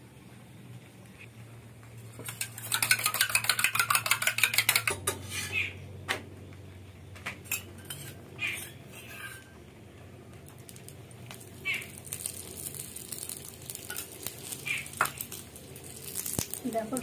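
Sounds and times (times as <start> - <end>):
egg beaten in steel bowl: 2.2 - 5.4.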